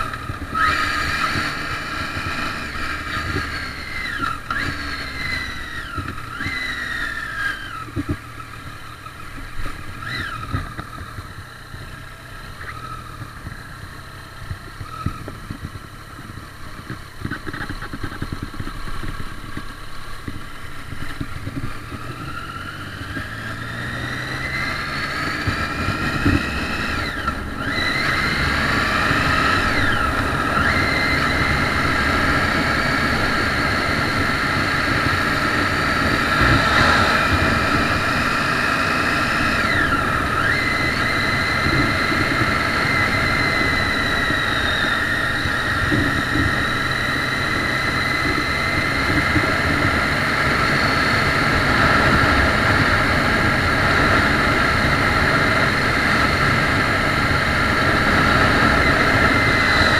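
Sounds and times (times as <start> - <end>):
motorcycle engine running: 0.0 - 59.9
wind rush over microphone: 25.4 - 46.8.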